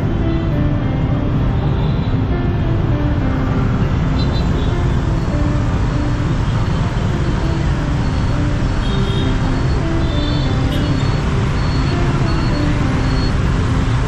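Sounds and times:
road noise: 0.0s - 14.0s
scooter engines rumbling: 0.0s - 14.0s.

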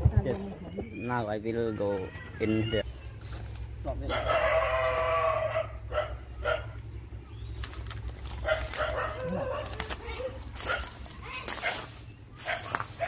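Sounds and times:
dog barking: 4.1s - 6.8s, 8.4s - 13.0s.

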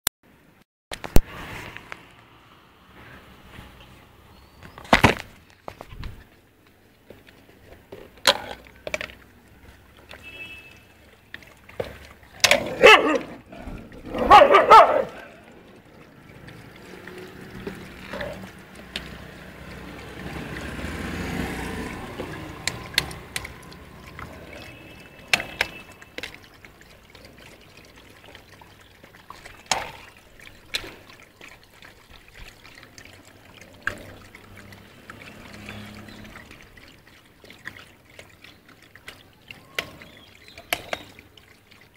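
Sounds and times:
dogs lapping and slurping: 3.1s - 41.9s
dogs calling: 12.4s - 15.6s.

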